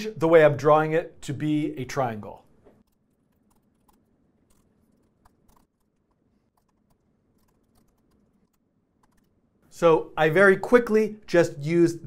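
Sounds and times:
typing on computer keyboard: 2.8s - 9.3s.

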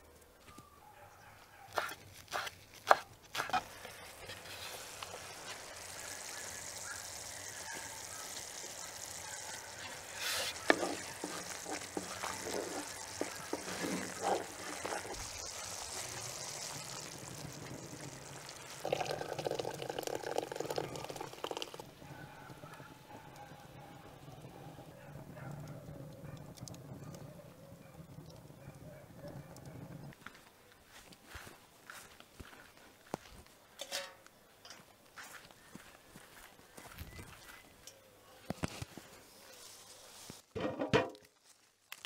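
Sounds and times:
sauce bubbling in a pan: 3.6s - 24.5s
thick sauce pouring into bowl: 8.4s - 21.9s
spatula stirring and knocking pan: 9.8s - 15.3s.

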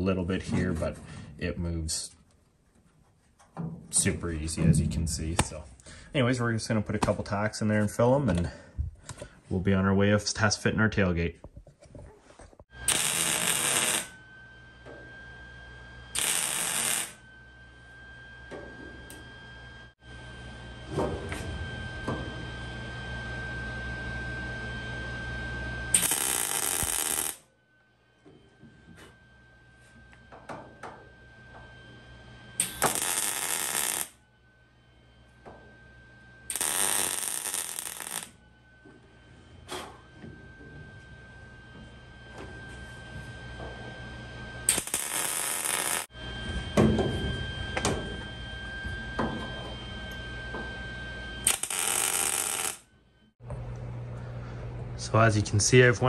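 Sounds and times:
faint high whine: 3.6s - 56.0s
welder crackling sizzle: 12.7s - 14.2s, 16.2s - 17.2s, 25.9s - 27.4s, 32.6s - 34.2s, 36.5s - 38.4s, 44.7s - 46.1s, 51.4s - 52.8s.

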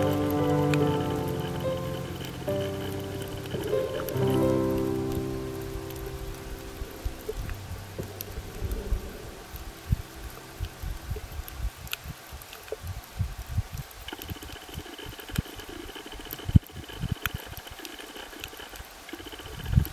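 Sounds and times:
sharp ticks: 0.0s - 5.2s.

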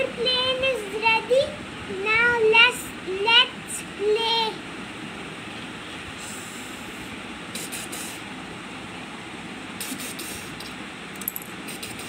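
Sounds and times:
steady hiss: 6.1s - 8.3s, 9.7s - 10.8s, 11.6s - 12.0s.

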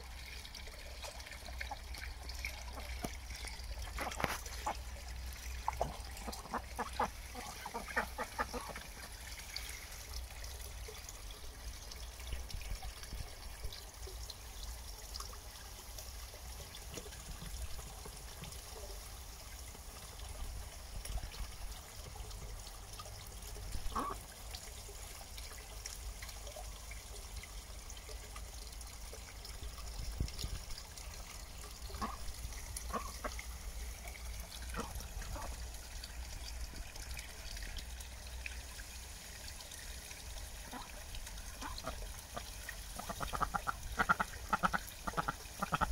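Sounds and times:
water trickling and splashing: 0.0s - 45.9s.

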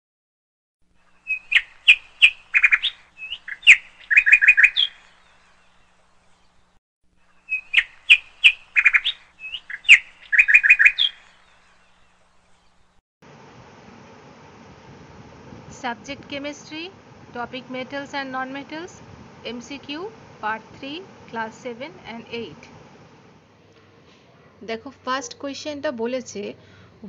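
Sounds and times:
bird chirping and trilling: 1.1s - 6.7s, 7.3s - 12.9s.

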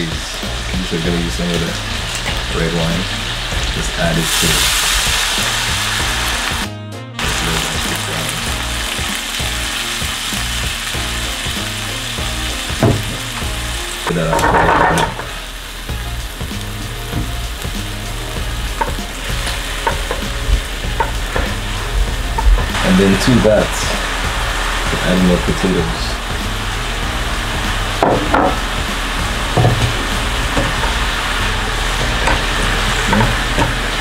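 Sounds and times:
food sizzling in frying pan: 0.0s - 34.0s
metal utensil scraping pan: 14.1s - 15.4s, 32.0s - 33.8s.

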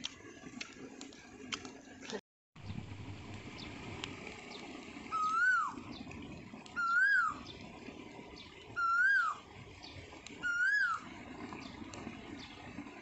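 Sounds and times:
stick fire crackling: 3.0s - 5.4s
bird calling: 5.1s - 6.0s, 6.8s - 7.6s, 8.8s - 9.5s, 10.4s - 11.1s.

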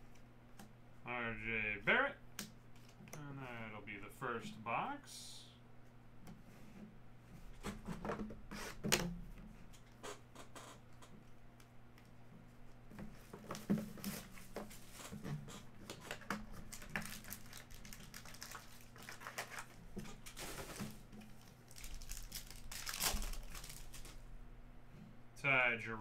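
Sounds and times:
foil wrappers crinkling: 13.2s - 24.2s
wrapper tearing: 15.9s - 24.2s.

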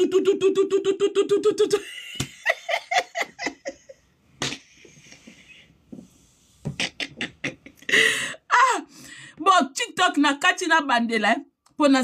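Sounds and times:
woman laughing: 1.5s - 5.3s, 6.8s - 8.3s.

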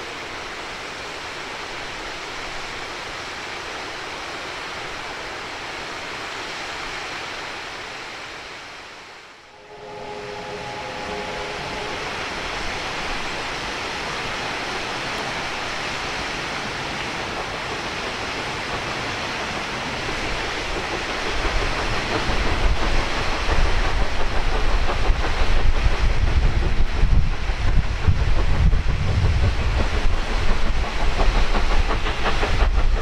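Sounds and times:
steam locomotive working: 0.0s - 33.0s
steam locomotive whistle: 9.5s - 14.2s.

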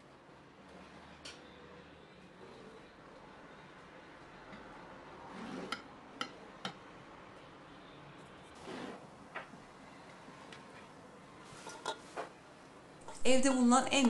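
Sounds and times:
glass bowl scraping on wood: 5.3s - 5.8s.

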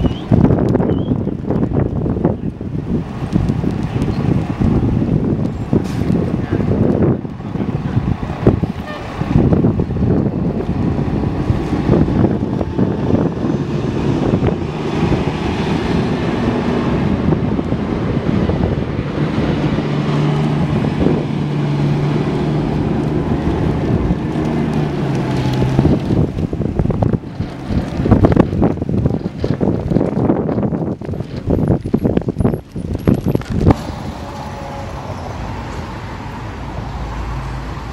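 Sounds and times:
wind buffeting microphone: 0.0s - 37.9s
diesel truck engine driving past: 4.2s - 28.4s, 33.6s - 37.9s.

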